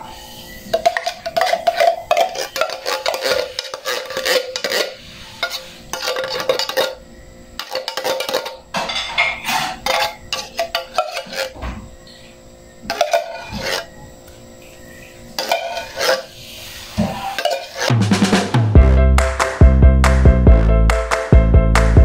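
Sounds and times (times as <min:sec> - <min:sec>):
spoon scraping inside tin can: 0:00.7 - 0:07.0, 0:07.6 - 0:11.6, 0:12.9 - 0:14.0, 0:15.4 - 0:18.0.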